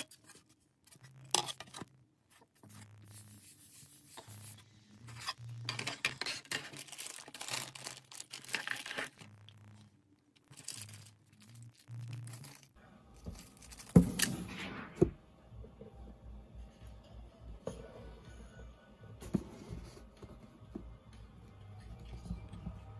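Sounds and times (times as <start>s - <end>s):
plastic bags crinkling: 5.4s - 14.0s.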